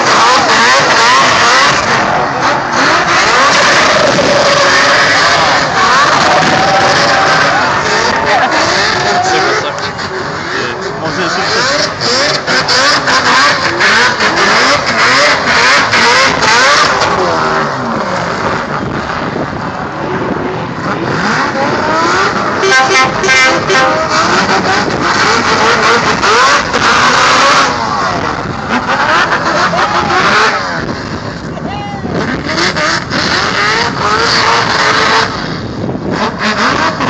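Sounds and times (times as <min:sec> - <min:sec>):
car engine revving hard: 0:00.0 - 0:37.0.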